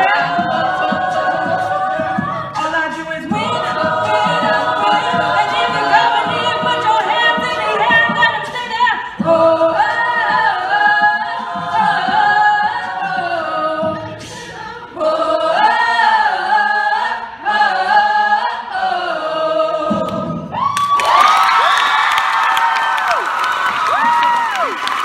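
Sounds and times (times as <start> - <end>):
choir singing in harmony: 0.0 - 20.6
audience cheering: 20.6 - 25.0.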